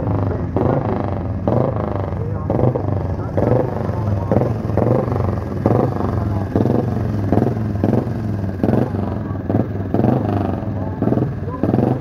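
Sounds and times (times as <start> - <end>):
motorcycle engine passing: 0.0 - 12.0.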